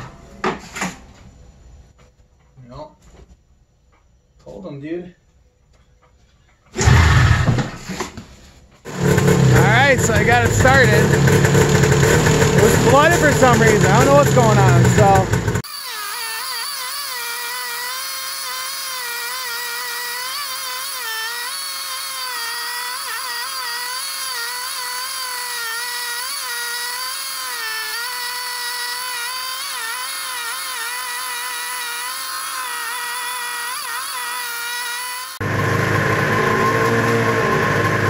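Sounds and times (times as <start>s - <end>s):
snowmobile engine whining: 8.9s - 38.0s.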